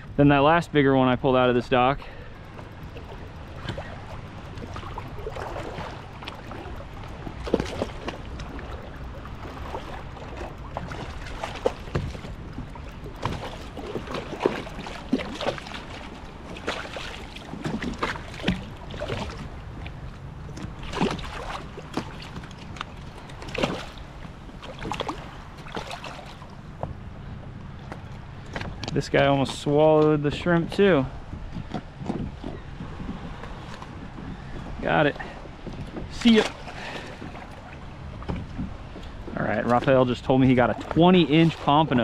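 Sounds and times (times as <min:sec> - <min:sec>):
wind: 0:00.0 - 0:42.0
water washing: 0:01.4 - 0:26.8, 0:36.0 - 0:37.6.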